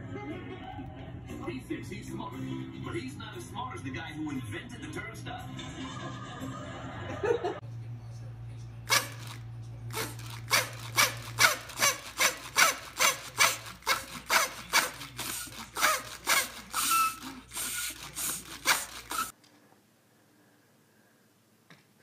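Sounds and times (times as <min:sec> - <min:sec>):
party blower toots: 0:08.9 - 0:19.4.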